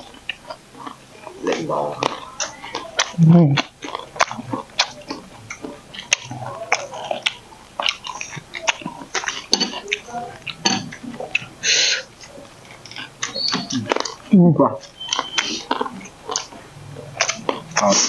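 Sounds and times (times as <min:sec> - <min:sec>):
crunchy chewing: 0:00.0 - 0:18.0
utensils clicking on plates: 0:03.8 - 0:11.5.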